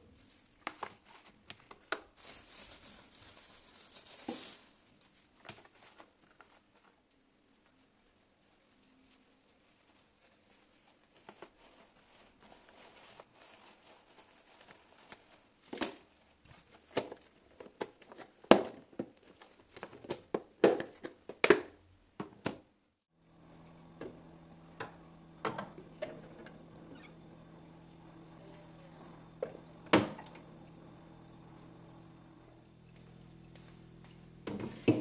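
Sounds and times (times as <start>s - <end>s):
paper towel rustling: 0.0s - 17.0s
steady low hum: 23.2s - 35.0s.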